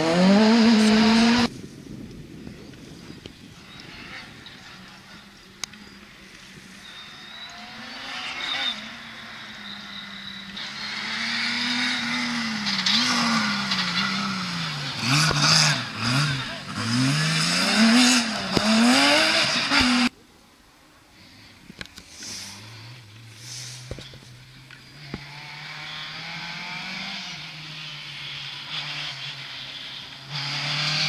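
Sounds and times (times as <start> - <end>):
rally car engine approaching: 0.0 - 1.5, 3.5 - 20.2, 22.2 - 31.0.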